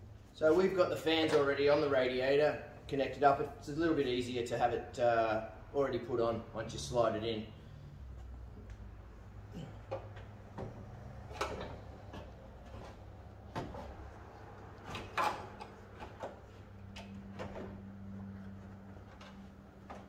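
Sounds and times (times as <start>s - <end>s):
metal knocks clunks and scrapes: 9.6s - 20.0s.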